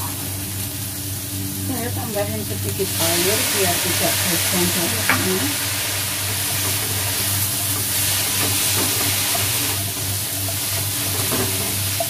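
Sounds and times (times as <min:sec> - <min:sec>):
vegetables sizzling in a wok: 0:00.0 - 0:12.0
spatula scraping wok: 0:03.0 - 0:12.0.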